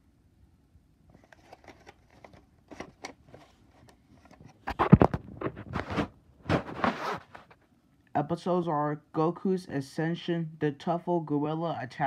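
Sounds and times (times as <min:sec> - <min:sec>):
plastic case clicks and rustles: 0:01.1 - 0:06.7
rustling and knocking of case: 0:01.2 - 0:07.6.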